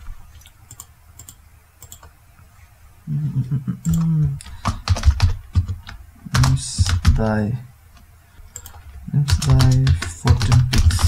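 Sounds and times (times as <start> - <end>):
keyboard typing: 0.7 - 2.1, 3.8 - 7.3, 8.0 - 11.0.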